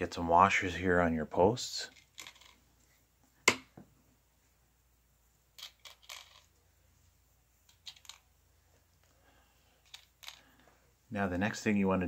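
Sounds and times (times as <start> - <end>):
metal washers clicking: 1.9 - 2.6, 5.6 - 6.5, 7.7 - 8.3, 9.8 - 10.6.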